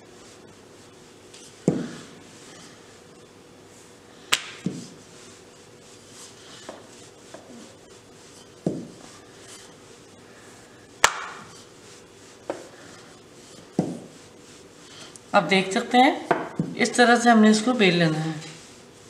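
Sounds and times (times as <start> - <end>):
rolling pin rolling dough: 0.0 - 19.0
rolling pin knocking on stone: 8.6 - 9.0.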